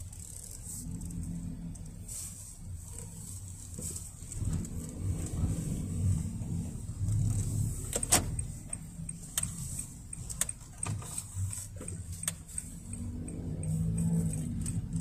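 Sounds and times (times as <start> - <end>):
car engine hum: 0.0 - 15.0
road rumble: 0.0 - 15.0.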